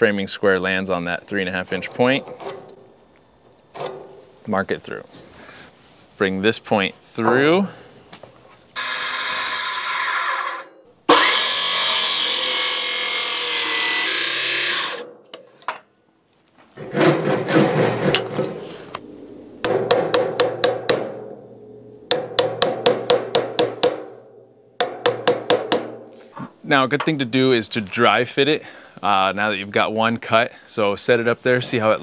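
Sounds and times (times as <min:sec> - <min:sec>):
circular saw cutting wood: 0:08.8 - 0:15.1
hammer tapping a chisel: 0:19.6 - 0:21.1, 0:22.1 - 0:24.0.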